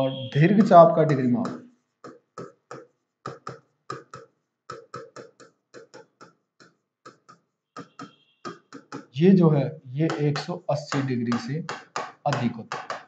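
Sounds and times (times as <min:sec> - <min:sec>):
pen writing on a board: 0:00.4 - 0:09.2, 0:10.1 - 0:13.0.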